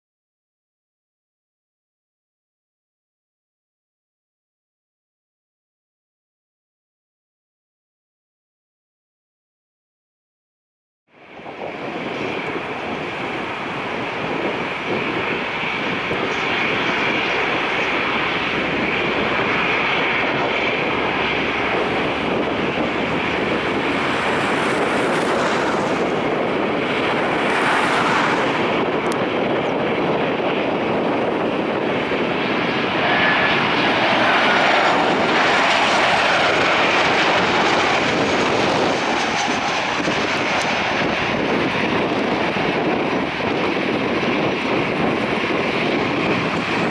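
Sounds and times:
jet engine whine: 11.1s - 46.9s.

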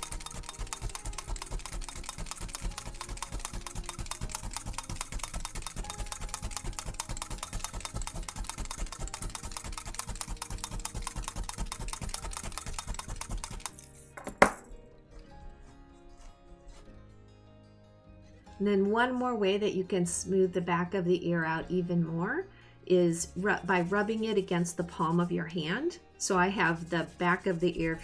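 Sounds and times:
felting needles poking wool: 0.0s - 14.1s, 23.2s - 28.0s
tool knocking when set down: 14.2s - 14.7s.

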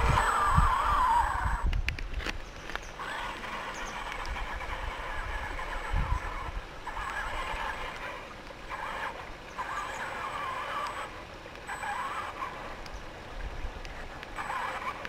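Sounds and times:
wind rumble on microphone: 0.0s - 9.4s
electric motor whining: 0.0s - 12.9s.

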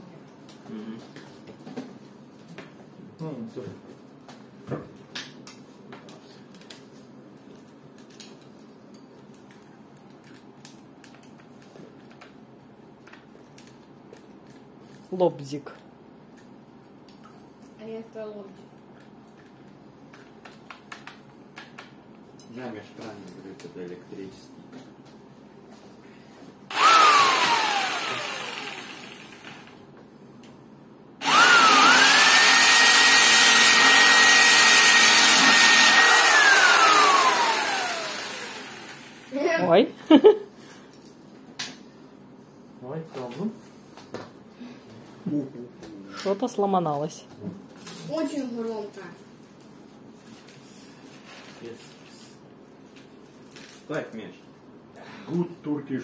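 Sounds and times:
faint room noise: 0.0s - 26.7s, 38.0s - 56.0s
electric jigsaw motor whining: 26.7s - 29.8s, 31.2s - 39.3s.

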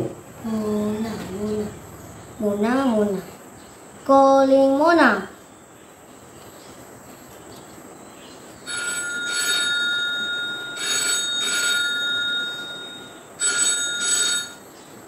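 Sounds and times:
phone double ring: 8.7s - 14.6s.

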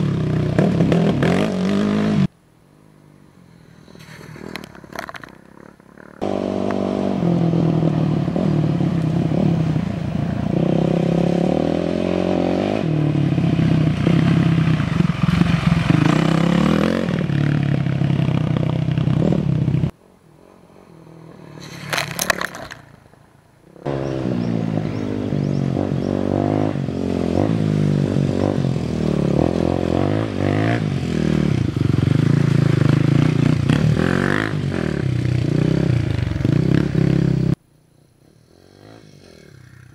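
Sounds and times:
dirt bike engines revving: 0.0s - 2.3s, 3.1s - 37.6s, 38.2s - 39.9s.

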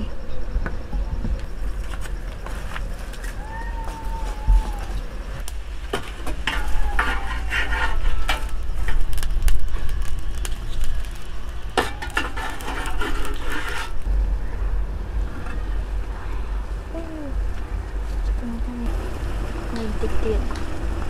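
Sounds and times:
charcoal clinking on metal: 5.9s - 14.0s.

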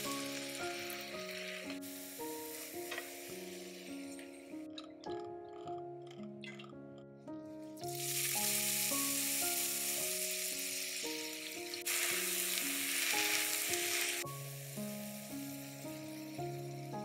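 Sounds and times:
potato sizzling in hot oil: 0.0s - 4.3s, 7.8s - 17.0s
soft background music: 0.0s - 17.0s.

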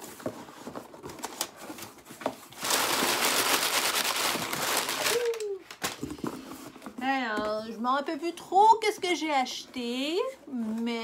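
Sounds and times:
cardboard box rustling and crinkling: 0.0s - 7.6s.

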